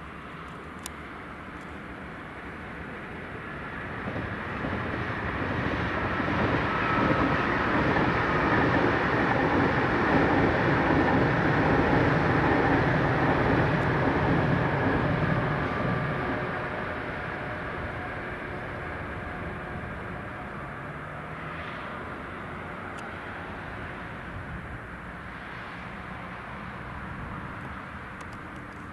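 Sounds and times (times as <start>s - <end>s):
electric train rushing past: 1.1s - 28.2s.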